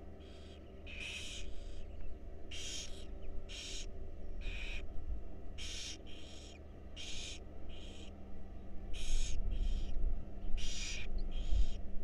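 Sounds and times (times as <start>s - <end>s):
low steady rumble: 0.0s - 12.0s
owl chicks hissing begging calls: 0.2s - 1.9s, 2.5s - 4.9s, 5.6s - 8.1s, 8.9s - 10.0s, 10.6s - 11.8s.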